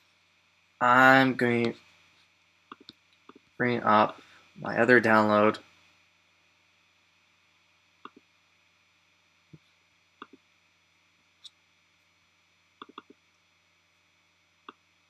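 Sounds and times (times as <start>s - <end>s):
computer mouse button clicks: 12.8s - 13.2s.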